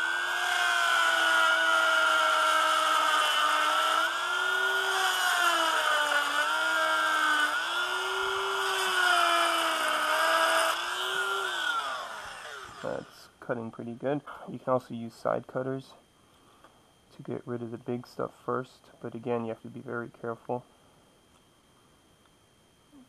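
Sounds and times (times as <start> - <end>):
rotary tool grinding plastic: 0.0 - 13.1.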